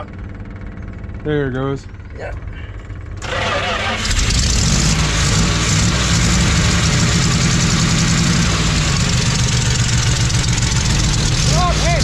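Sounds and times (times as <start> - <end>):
pickup engine running: 2.5 - 12.0.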